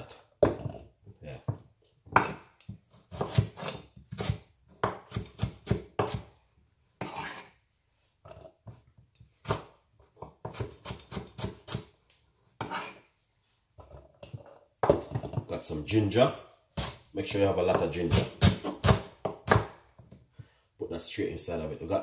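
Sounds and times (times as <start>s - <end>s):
knife chopping on wooden board: 1.5s - 6.3s, 7.0s - 7.5s, 9.4s - 11.9s, 12.6s - 13.0s, 14.2s - 15.5s, 16.8s - 17.0s, 17.7s - 19.8s.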